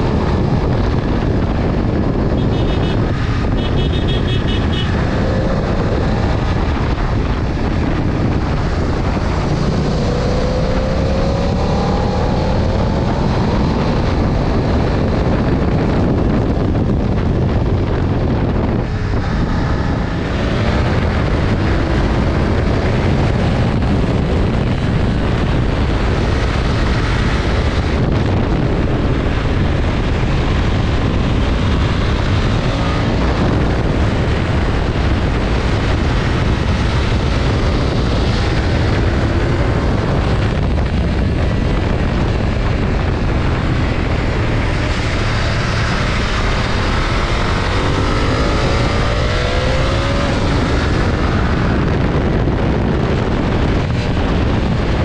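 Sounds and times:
motorcycle engine running: 0.0s - 55.0s
wind rush on microphone: 0.0s - 55.0s.

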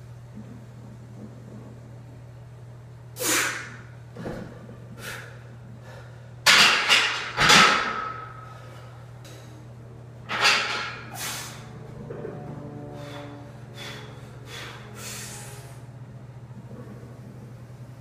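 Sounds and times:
steady low hum: 0.0s - 18.0s
loud sharp breaths: 11.1s - 11.8s, 12.9s - 15.9s.

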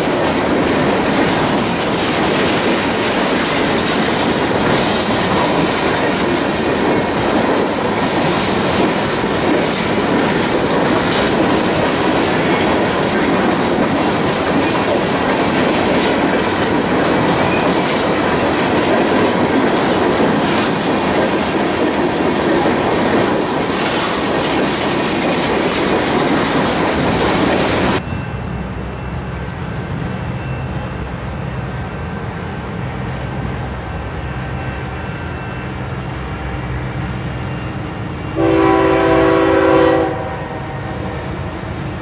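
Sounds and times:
wheels clacking over rail joints: 0.0s - 28.2s
distant diesel locomotive drone: 0.0s - 42.0s
freight train wheels rumbling: 0.0s - 42.0s.

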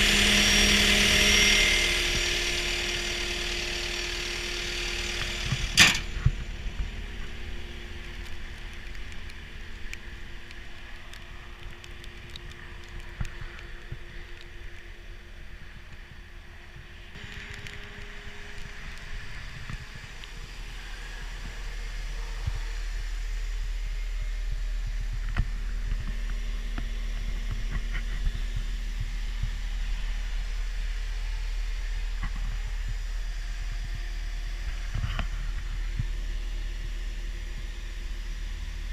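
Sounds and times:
diesel engine idling: 0.0s - 10.5s.

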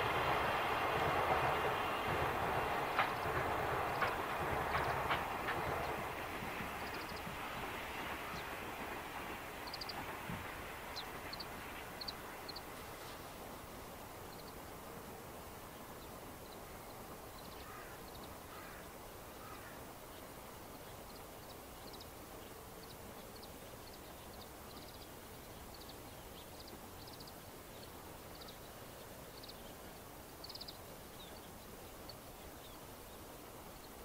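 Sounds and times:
faint outdoor hiss: 0.0s - 34.0s
small birds chirping: 3.0s - 7.4s, 9.6s - 10.1s, 10.9s - 12.8s, 14.2s - 14.7s, 15.7s - 34.0s.

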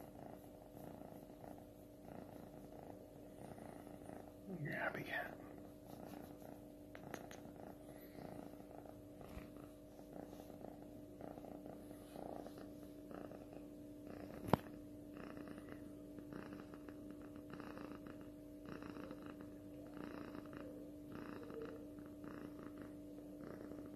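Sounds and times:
kitten purring: 0.0s - 23.9s.

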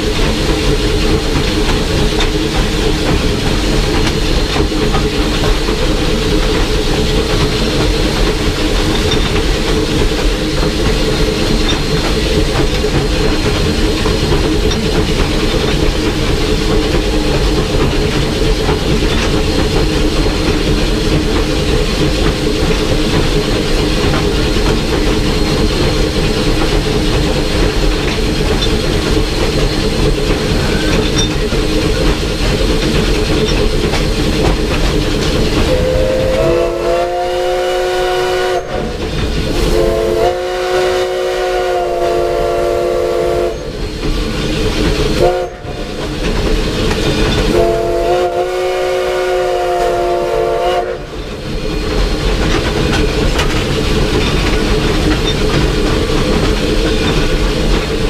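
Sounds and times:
steam locomotive rumble and clatter: 0.0s - 58.0s
steam whistle: 35.7s - 38.9s, 39.6s - 43.7s, 45.2s - 45.8s, 47.5s - 51.1s.

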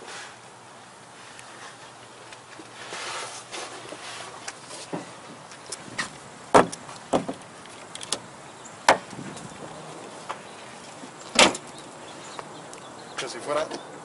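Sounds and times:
shuffling rustle: 1.1s - 6.2s
liftgate clunks and latch clicks: 11.2s - 11.8s.

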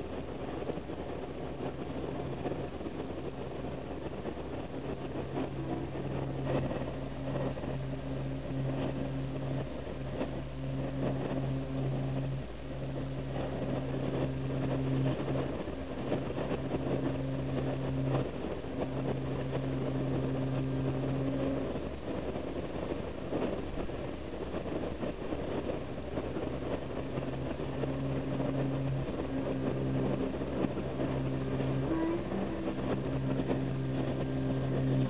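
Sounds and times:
low hum: 0.0s - 35.0s
train rumbling: 0.0s - 35.0s.

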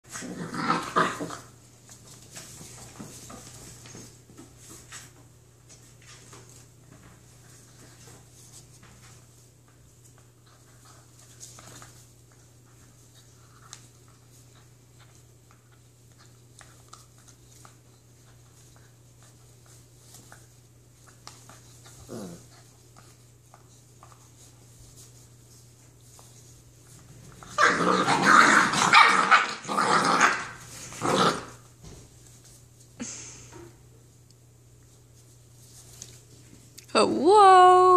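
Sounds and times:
puppies growling and barking: 0.1s - 1.6s, 21.9s - 22.7s, 27.1s - 31.7s
puppy growling: 0.1s - 1.6s, 21.9s - 22.7s, 27.3s - 31.7s.

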